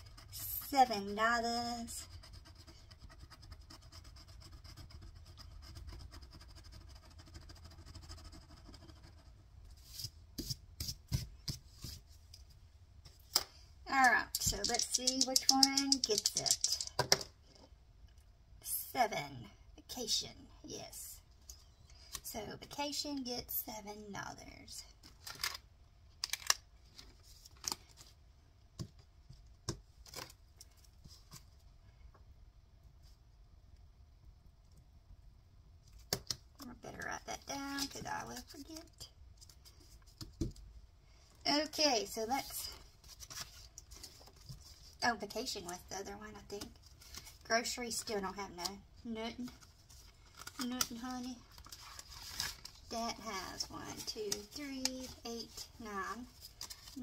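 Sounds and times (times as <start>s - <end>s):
fingertip scratching a sticker: 2.0s - 9.4s
sharp scrapes and taps: 14.3s - 17.3s.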